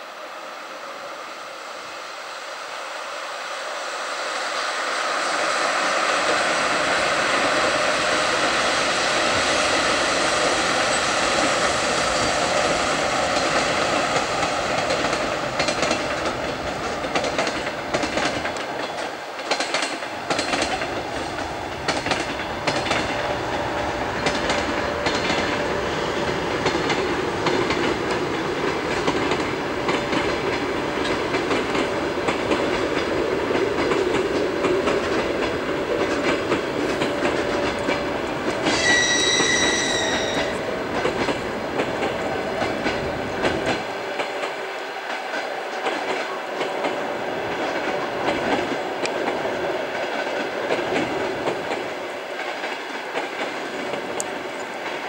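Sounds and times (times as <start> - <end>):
train wheels rolling: 3.9 - 55.0
wheels clicking over rail joints: 7.3 - 55.0
locomotive whistle: 38.6 - 40.7.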